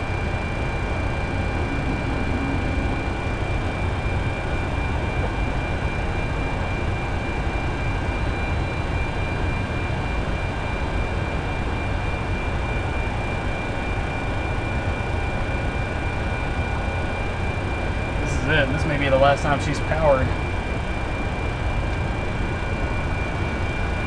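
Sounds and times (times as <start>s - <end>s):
thin high whine: 0.0s - 4.7s
aircraft cockpit low rumble: 0.0s - 24.0s.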